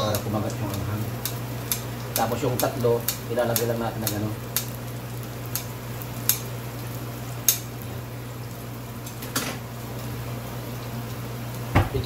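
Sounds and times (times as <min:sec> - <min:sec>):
utensils clicking on pan: 0:00.0 - 0:04.8, 0:05.5 - 0:07.8
onions sizzling in a frying pan: 0:00.0 - 0:12.0.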